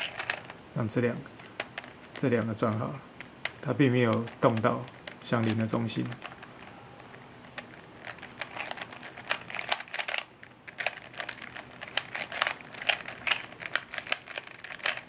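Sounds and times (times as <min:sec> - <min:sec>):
puzzle cube layers clicking: 0:00.0 - 0:00.5.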